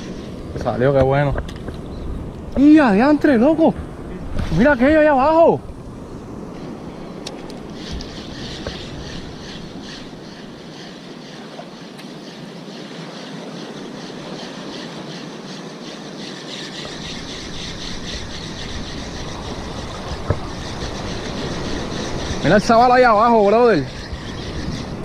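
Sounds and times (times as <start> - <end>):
fishing reel whirring: 16.9 - 25.0.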